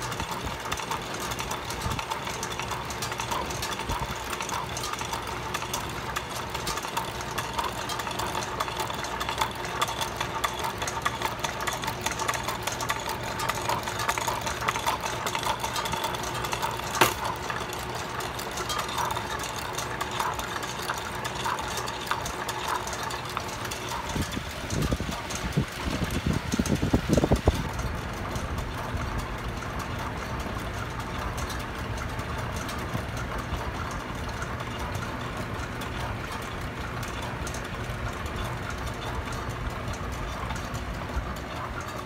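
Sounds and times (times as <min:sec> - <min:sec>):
steady hum: 0:00.0 - 0:42.0
wooden gears clattering: 0:09.4 - 0:25.1.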